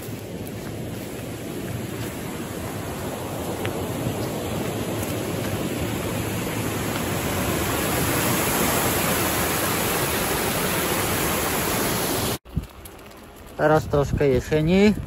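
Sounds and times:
water rushing over weir: 1.8s - 12.4s.

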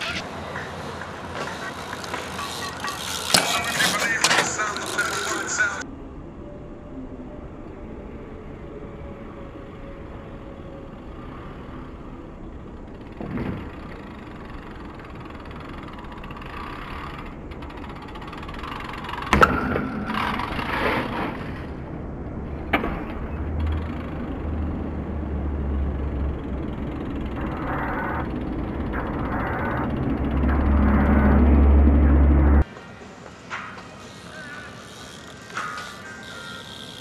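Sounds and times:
bike tyres rolling on concrete: 0.0s - 5.8s, 11.0s - 37.0s
steady outdoor hum: 0.0s - 37.0s
low rumble: 19.8s - 32.6s.

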